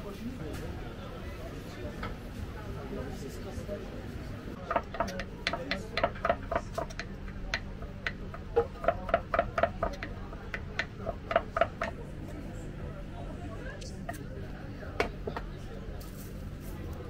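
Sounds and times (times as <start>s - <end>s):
knife chopping on wooden board: 4.7s - 12.0s.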